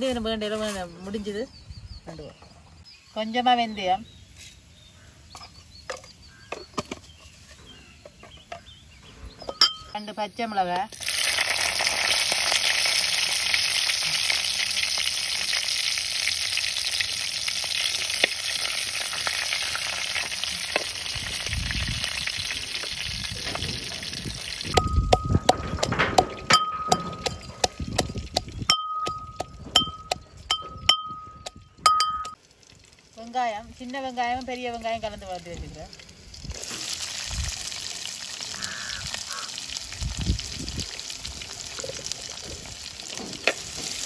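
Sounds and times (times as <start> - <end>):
spices sizzling in hot oil: 8.1 - 25.4, 32.3 - 44.0.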